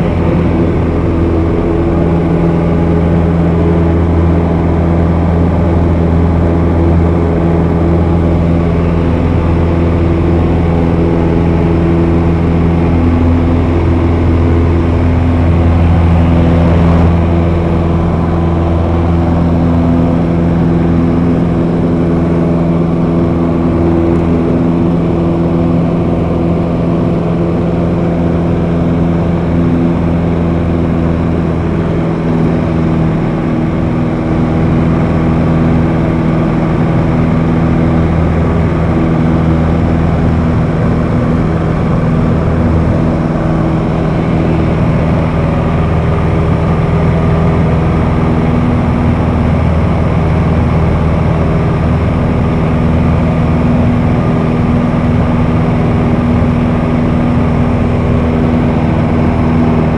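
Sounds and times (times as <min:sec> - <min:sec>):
light aircraft engine droning: 0:00.0 - 0:59.9.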